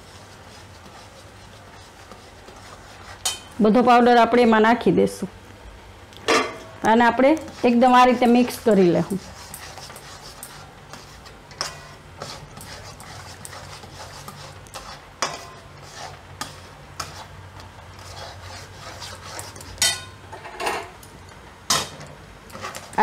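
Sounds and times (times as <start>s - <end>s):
metal spoon scraping a pan: 2.0s - 3.6s, 7.4s - 21.0s.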